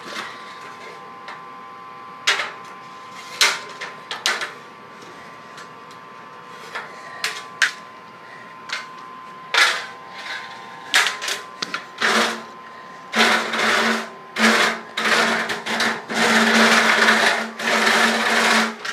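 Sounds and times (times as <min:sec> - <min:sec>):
rasping and rattling with buzz: 0:08.6 - 0:18.9.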